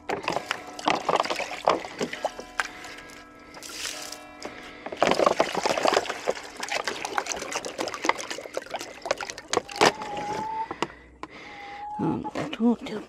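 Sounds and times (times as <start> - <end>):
water pouring into metal pot: 0.2 - 2.8, 3.5 - 4.2, 5.0 - 9.9.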